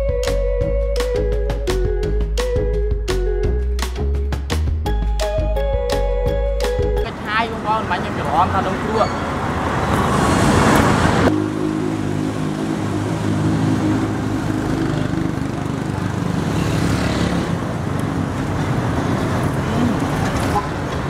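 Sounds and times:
vehicle passing: 7.1 - 21.0
engine humming steadily: 10.7 - 21.0.

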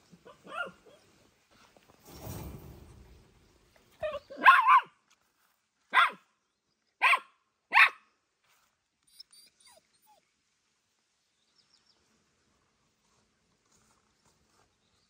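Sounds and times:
small dog barking: 0.2 - 1.0, 4.0 - 5.0, 5.9 - 6.2, 7.0 - 8.0.

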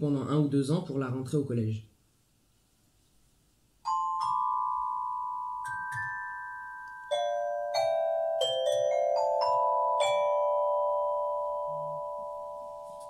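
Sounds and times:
tuned percussion notes ringing: 3.8 - 13.0.

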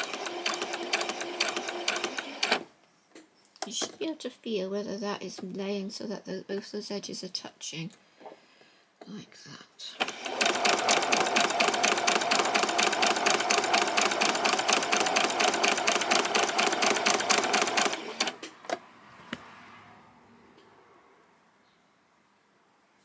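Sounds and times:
sewing machine stitching: 0.0 - 2.7, 10.0 - 18.5.

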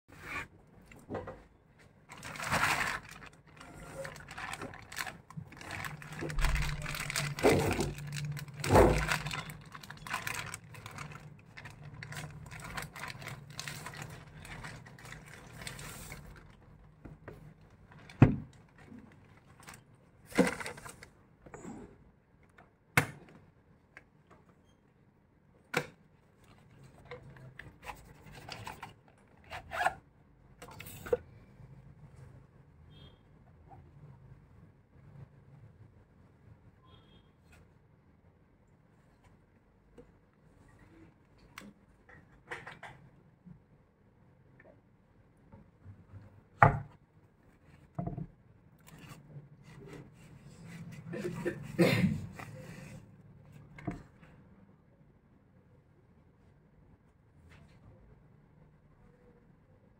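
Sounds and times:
plastic mailer tearing and rustling: 2.1 - 16.6, 17.9 - 21.1.

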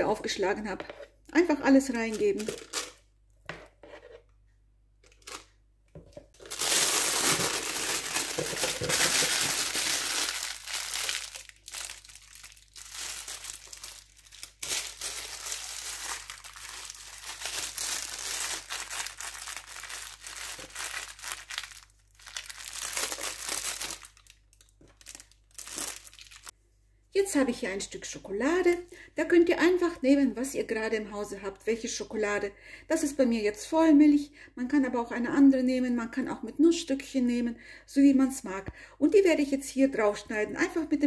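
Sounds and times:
piping bag crinkling and rustling: 2.0 - 3.0, 6.2 - 26.5.

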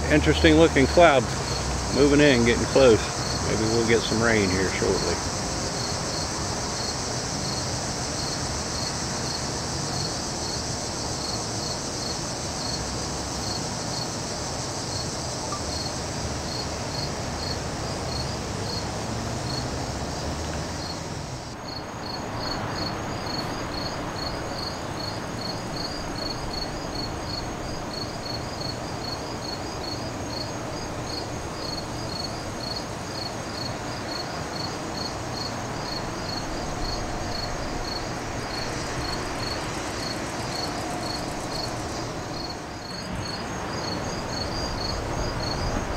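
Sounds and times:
crickets and insects chirping: 0.0 - 45.9
low background hiss: 0.0 - 45.9.

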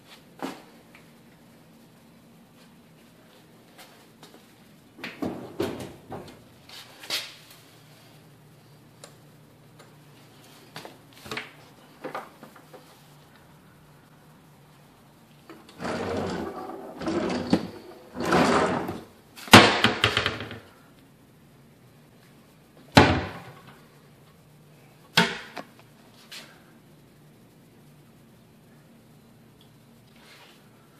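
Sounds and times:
wooden drawer sliding and rattling: 15.8 - 19.1.

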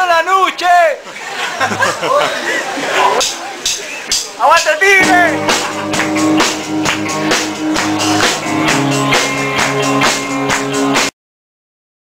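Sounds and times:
drum kit beat: 3.1 - 11.1
bass guitar: 5.0 - 11.1
electric guitar: 5.0 - 11.1.

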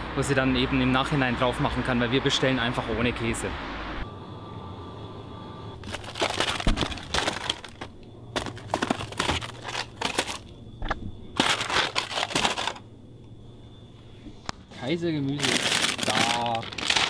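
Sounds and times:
faint steady hum: 3.7 - 17.0
cardboard boxes rustling and knocking: 5.8 - 12.8.

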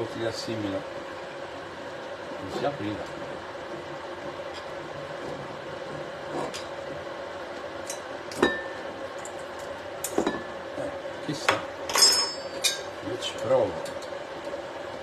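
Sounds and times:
glass clink with ring: 8.4 - 8.8, 11.9 - 12.9.

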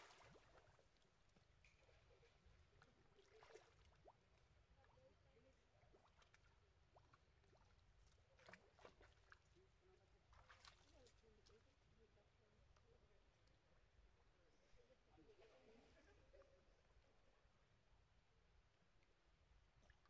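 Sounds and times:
water splashing and sloshing: 0.0 - 11.8, 19.6 - 20.0.

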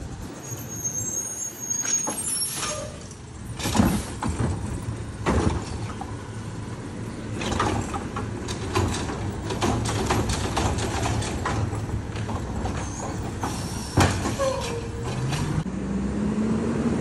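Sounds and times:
garbage truck diesel engine: 0.0 - 17.0
hydraulic arm clunks: 7.3 - 15.6.

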